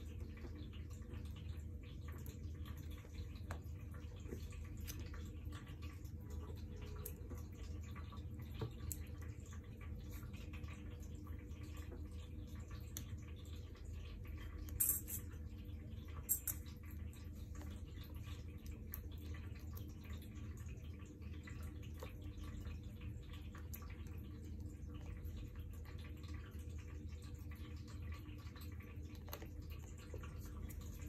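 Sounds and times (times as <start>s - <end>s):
faint clicks and taps: 0.1s - 15.2s.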